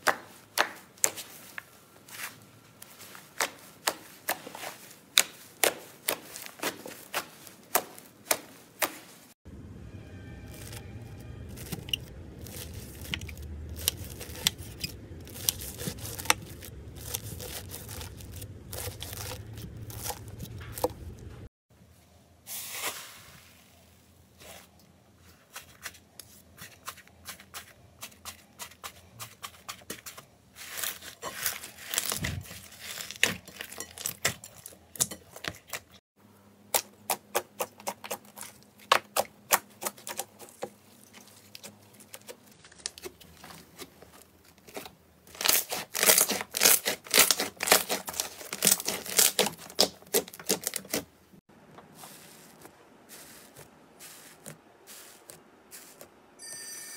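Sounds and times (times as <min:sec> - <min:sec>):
foam slime crackling: 0:10.5 - 0:10.8, 0:11.5 - 0:21.4, 0:25.3 - 0:35.0, 0:39.5 - 0:51.1, 0:51.9 - 0:56.2
knife slicing slime: 0:44.7 - 0:51.1.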